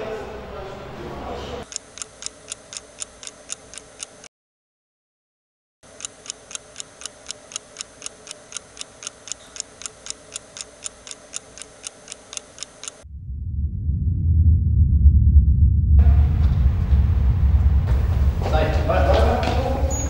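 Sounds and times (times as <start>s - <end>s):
wall clock ticking fast: 1.6s - 4.3s, 5.8s - 13.0s.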